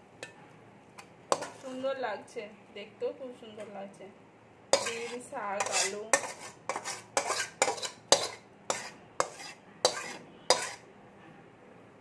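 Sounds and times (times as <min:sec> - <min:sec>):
metal spatula scraping metal pan: 0:01.3 - 0:01.8, 0:04.7 - 0:10.8.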